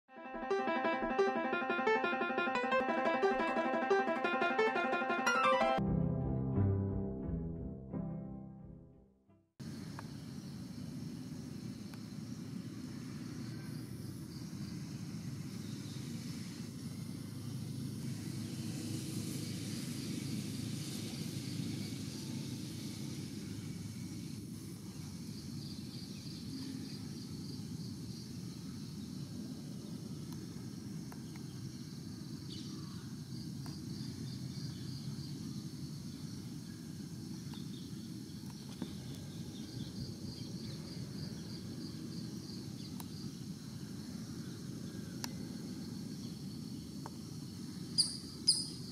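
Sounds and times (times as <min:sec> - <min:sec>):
insect chirping: 0:09.6 - 0:48.9.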